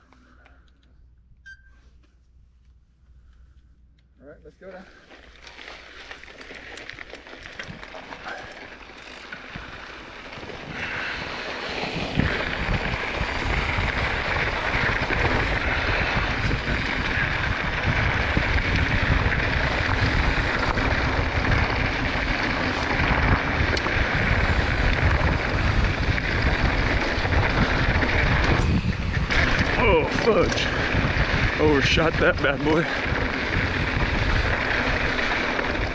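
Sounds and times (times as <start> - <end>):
bike tyres rumbling on rocky trail: 4.8 - 35.9
wind on microphone: 10.6 - 35.9.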